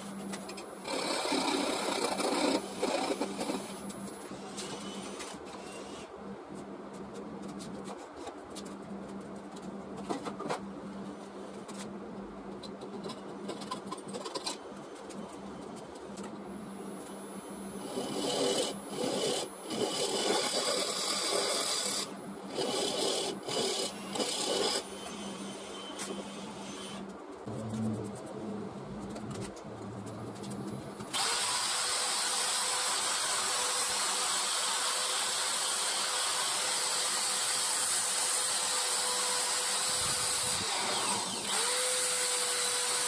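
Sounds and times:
wood lathe humming: 31.1s - 33.8s, 34.5s - 43.0s.

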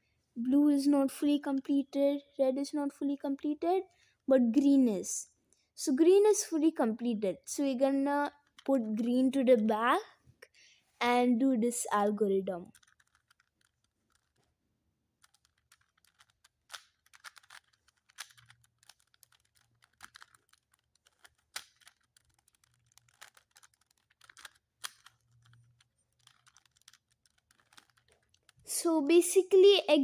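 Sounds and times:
puzzle cube clicking: 12.6s - 14.6s, 15.2s - 28.8s.

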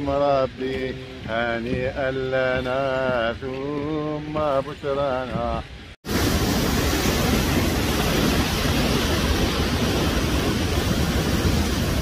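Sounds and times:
waterfall rushing: 6.1s - 12.0s.

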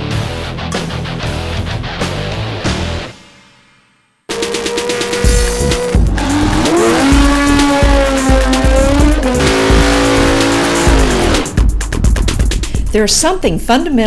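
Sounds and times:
music with a steady beat: 0.0s - 13.1s
tyres screeching: 4.3s - 11.5s
high-revving engine: 4.3s - 11.6s.

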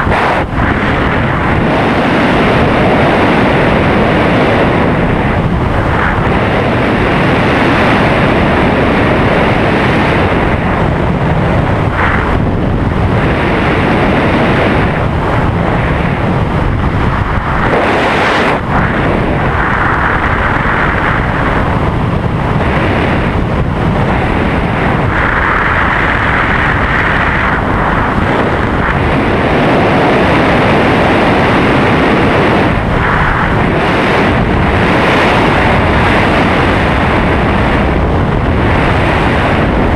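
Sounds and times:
air rushing over microphone: 0.0s - 39.9s.

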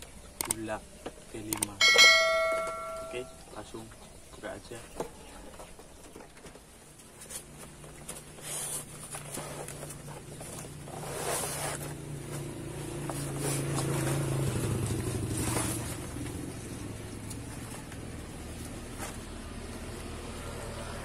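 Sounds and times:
cardboard packaging rustling: 6.8s - 16.2s
vehicle engine running: 8.8s - 21.0s.

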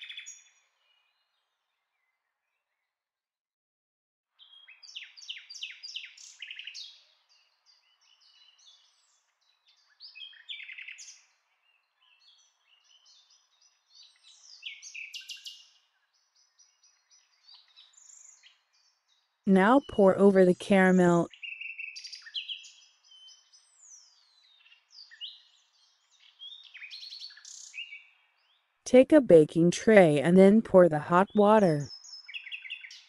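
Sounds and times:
small birds chirping: 4.4s - 19.4s, 21.3s - 28.7s, 31.9s - 33.0s.

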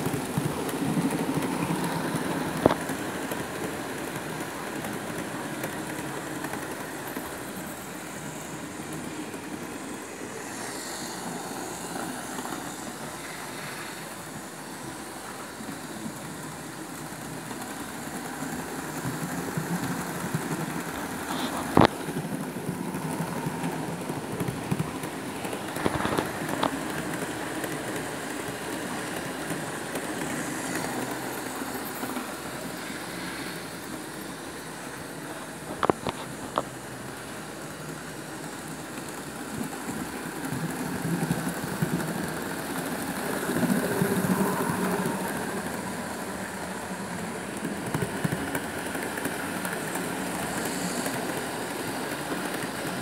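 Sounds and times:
model trains rumbling on track: 0.0s - 53.0s.

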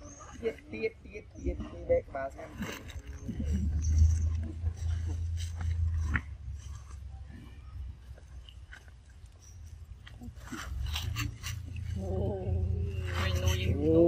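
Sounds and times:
steady low rumble: 1.5s - 14.0s.

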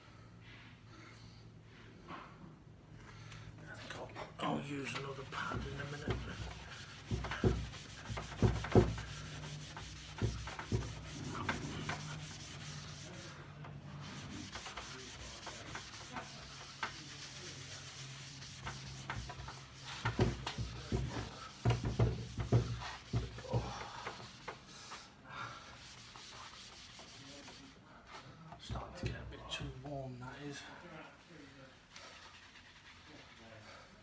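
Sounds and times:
buffing pad scuffing wood: 4.8s - 13.3s, 14.0s - 25.0s.

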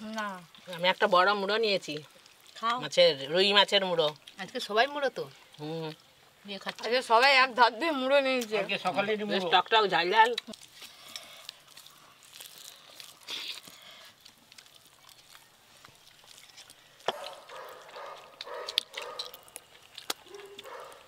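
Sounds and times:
person chewing and sucking: 10.2s - 21.0s.

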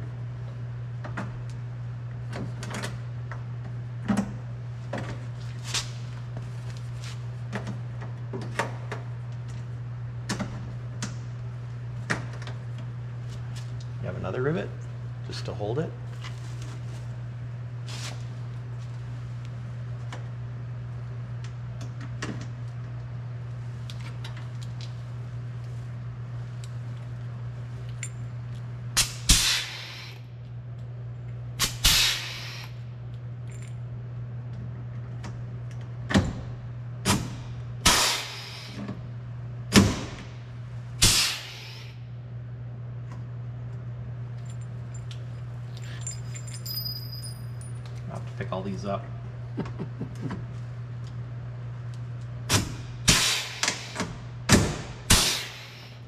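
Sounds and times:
rivet gun snaps: 29.0s - 29.6s
air hissing: 29.0s - 30.2s, 31.6s - 32.8s, 37.9s - 38.8s, 41.0s - 42.0s, 53.1s - 54.0s, 55.1s - 56.0s.

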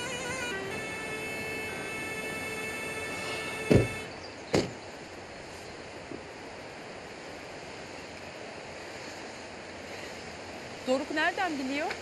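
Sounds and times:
rushing outdoor noise: 0.0s - 12.0s
car doors shutting: 3.2s - 4.8s.

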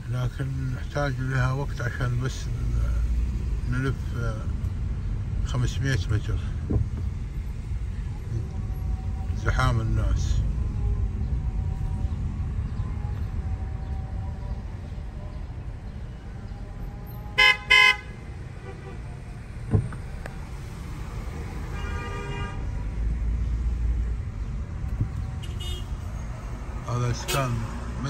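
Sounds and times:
traffic rumble: 0.0s - 28.0s
car horn toots: 17.4s - 19.0s, 21.7s - 22.7s, 25.4s - 26.0s.

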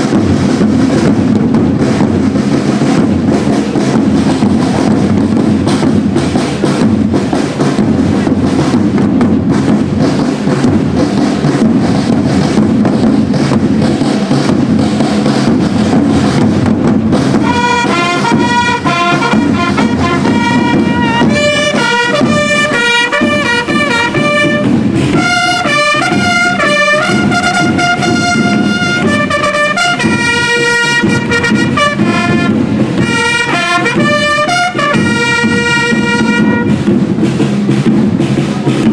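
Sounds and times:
marching drums: 0.0s - 38.9s
trumpet fanfare: 17.3s - 37.0s.

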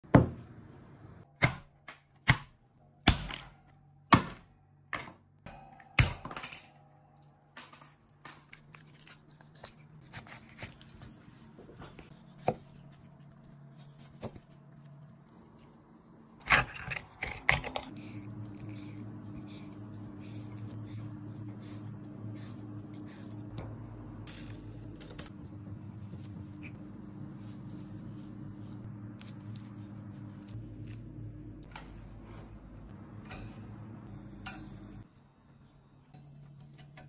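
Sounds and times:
scraping and wet handling: 7.9s - 25.4s.

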